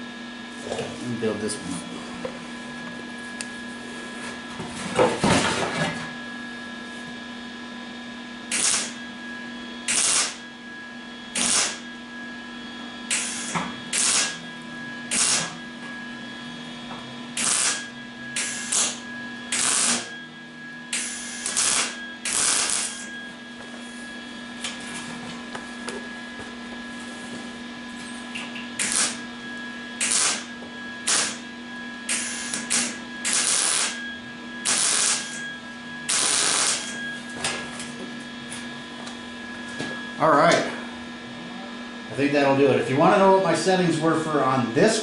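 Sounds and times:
steady hum: 0.0 - 45.0
welding arc bursts: 8.5 - 9.0, 9.9 - 10.4, 11.4 - 11.8, 13.1 - 14.4, 15.1 - 15.5, 17.4 - 17.8, 18.4 - 20.1, 21.0 - 23.1, 28.8 - 29.2, 30.0 - 31.4, 32.1 - 34.0, 34.6 - 35.4, 36.1 - 37.0.

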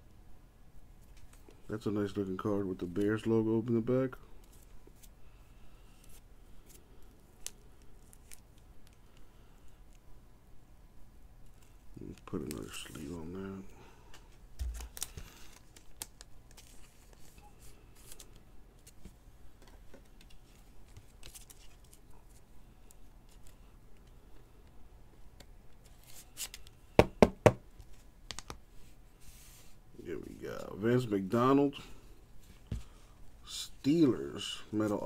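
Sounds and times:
plastic sleeve rustling: 14.6 - 19.1.

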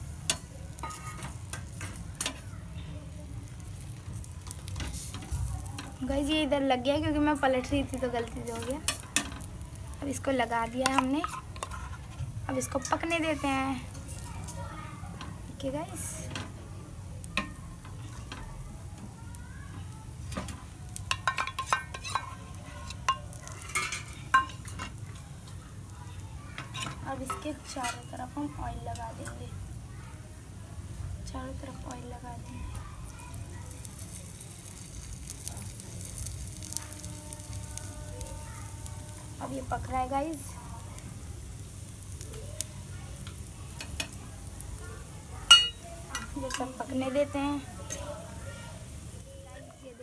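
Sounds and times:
spoon scraping a hot griddle: 0.0 - 2.5, 3.2 - 16.0, 17.3 - 18.5, 19.7 - 25.6, 26.6 - 29.4, 33.0 - 49.1
faint pan sizzle: 0.0 - 50.0
spoon clinking against steel bowl: 21.1 - 24.8, 45.5 - 46.7.

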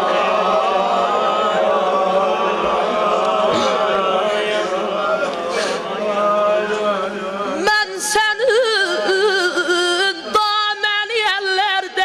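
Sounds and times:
men chanting together: 0.0 - 7.6
young male voice singing into microphone: 5.4 - 12.0.

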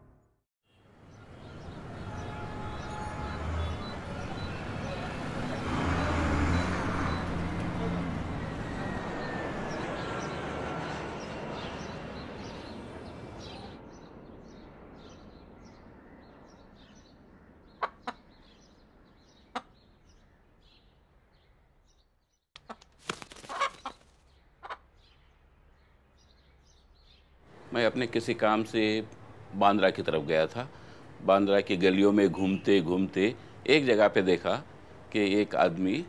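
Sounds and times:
traffic noise: 0.7 - 21.5, 22.6 - 36.0
aircraft noise: 1.1 - 15.2, 27.5 - 36.0.

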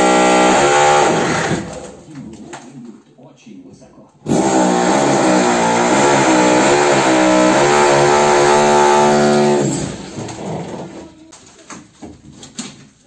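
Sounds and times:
power tool motor running: 0.0 - 1.8, 4.3 - 10.2.

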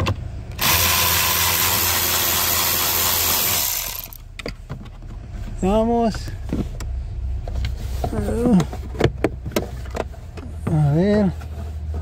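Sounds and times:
cordless ratchet running: 0.6 - 4.2.

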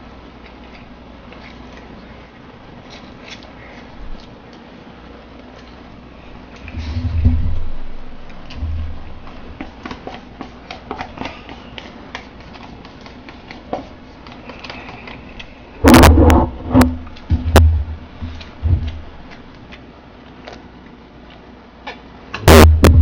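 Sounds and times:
eating sounds: 0.4 - 7.3, 8.2 - 17.3
chopsticks scraping paper cups: 2.8 - 4.6, 9.2 - 16.5
loud burst of noise: 15.8 - 18.0, 22.4 - 23.0.

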